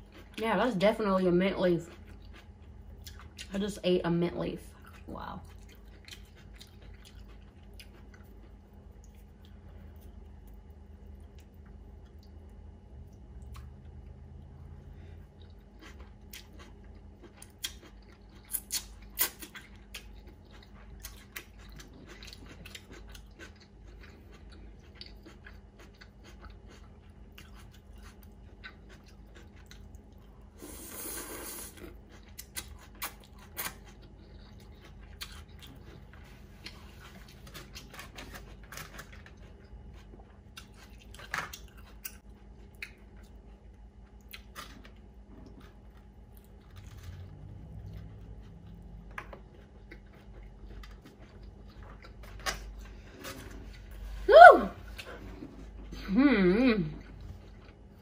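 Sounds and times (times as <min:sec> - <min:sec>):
person chewing noodles: 0:00.0 - 0:00.4, 0:01.8 - 0:03.5, 0:04.7 - 0:54.2, 0:56.8 - 0:58.0.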